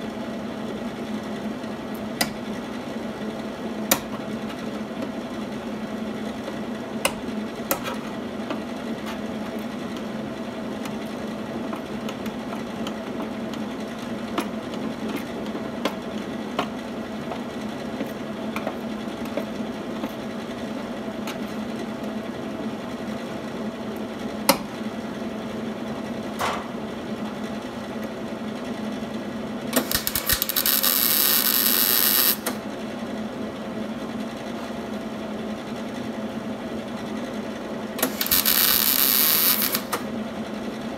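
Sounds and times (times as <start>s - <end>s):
welder arc crackling: 29.8s - 32.6s, 38.0s - 40.1s.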